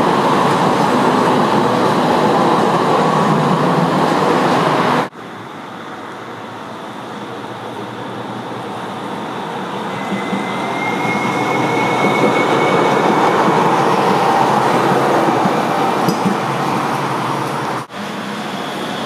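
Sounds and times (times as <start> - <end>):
tram passing: 0.0 - 19.0
thin high whine: 9.2 - 15.4.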